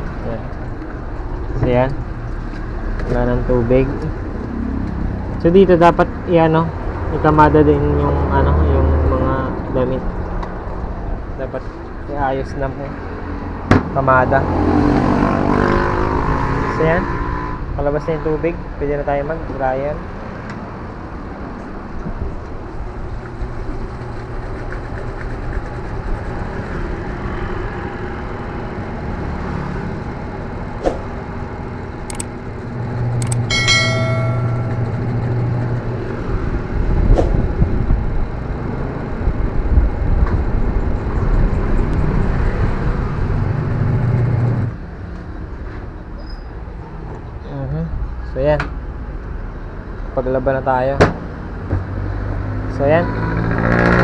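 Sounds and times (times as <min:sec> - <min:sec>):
short bright chime: 0:33.5 - 0:35.1.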